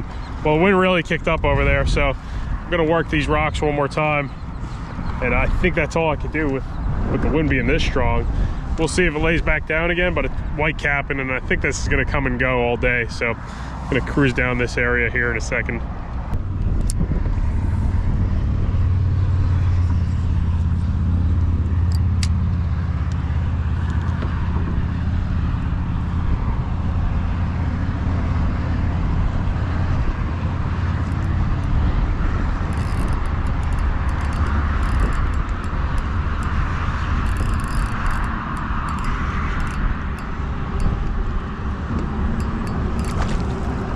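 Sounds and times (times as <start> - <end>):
wind: 0.0 - 43.9
water noise: 29.4 - 43.9
motor humming: 30.5 - 43.9.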